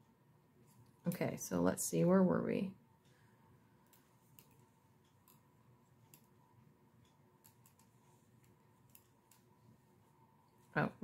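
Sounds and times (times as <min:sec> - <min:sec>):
knitting needles clicking: 0:03.8 - 0:06.4, 0:07.0 - 0:09.6.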